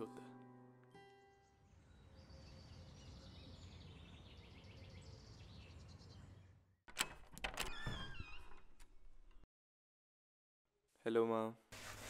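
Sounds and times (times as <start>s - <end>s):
small birds chirping: 1.3s - 6.6s.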